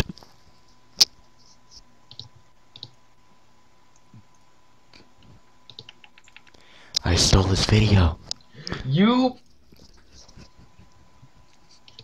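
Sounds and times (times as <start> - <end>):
computer mouse clicks: 1.7 - 3.0, 5.7 - 6.6.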